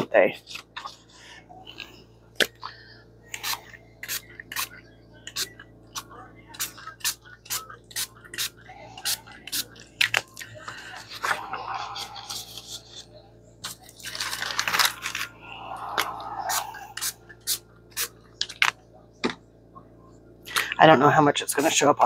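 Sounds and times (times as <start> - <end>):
paper rustling: 13.6 - 15.3.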